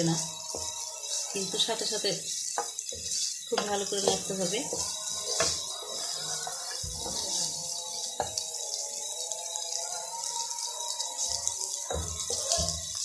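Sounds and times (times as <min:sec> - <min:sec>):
egg sizzling in a frying pan: 0:00.0 - 0:13.0
wooden spatula knocking on pan: 0:00.2 - 0:01.6, 0:02.5 - 0:07.4, 0:08.2 - 0:08.4, 0:11.4 - 0:13.0.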